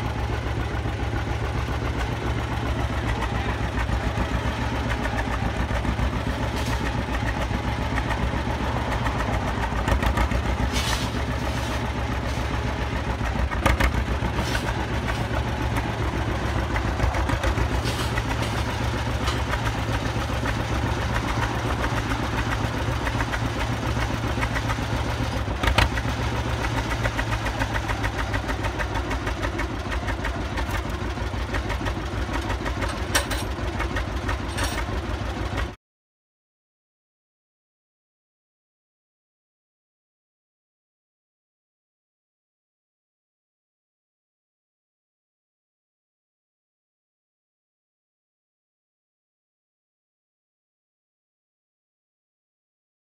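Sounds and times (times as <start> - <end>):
tractor engine idling: 0.0 - 35.8.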